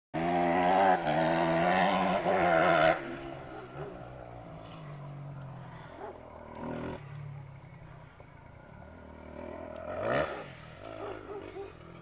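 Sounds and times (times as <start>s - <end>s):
motorcycle engine accelerating: 0.2s - 12.0s.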